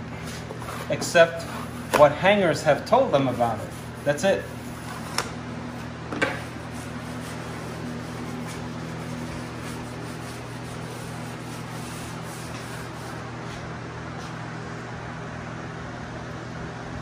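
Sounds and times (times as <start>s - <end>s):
steady low hum: 0.0s - 17.0s
smoother rubbing on wallcovering: 0.2s - 5.1s, 5.7s - 14.3s.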